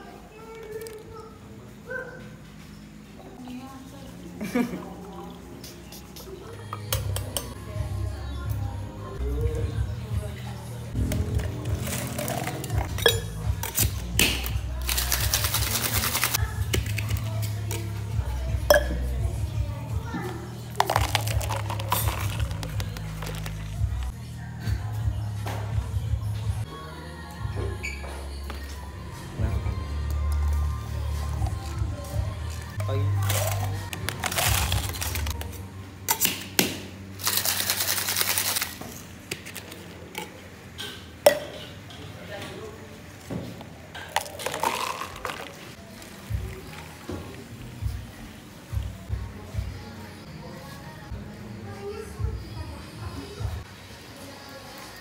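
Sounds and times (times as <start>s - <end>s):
cocktail shaker rattling: 14.8s - 17.1s, 20.7s - 23.8s, 37.2s - 39.6s
ice clinking: 20.8s - 23.6s, 33.2s - 35.4s, 44.0s - 45.7s
metal tins clacking together: 20.8s - 23.6s.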